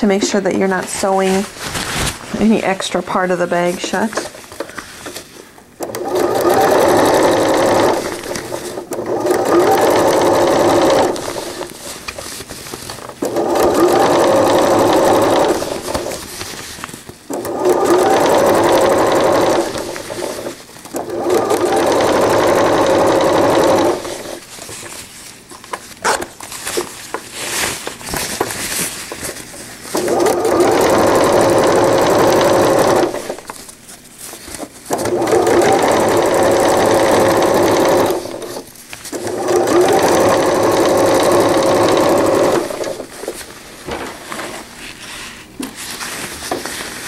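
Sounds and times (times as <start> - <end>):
fabric handling noise: 0.2 - 3.2, 3.9 - 47.0
electric sewing machine stitching: 5.8 - 11.7, 13.2 - 16.2, 17.3 - 24.4, 29.9 - 33.5, 34.9 - 43.2.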